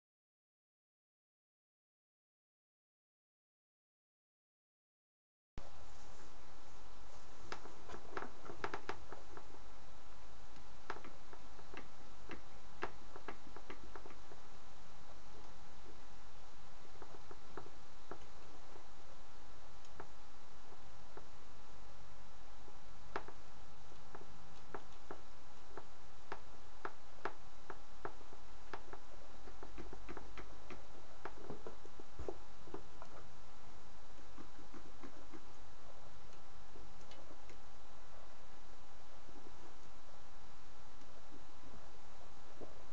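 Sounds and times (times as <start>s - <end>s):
steady background hiss: 5.6s - 42.9s.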